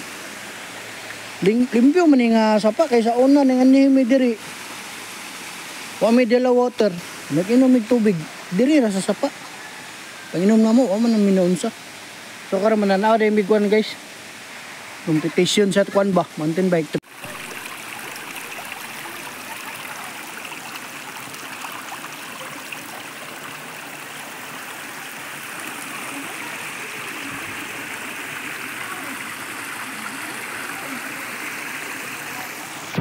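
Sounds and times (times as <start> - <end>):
creek water flowing over rocks: 0.0 - 33.0.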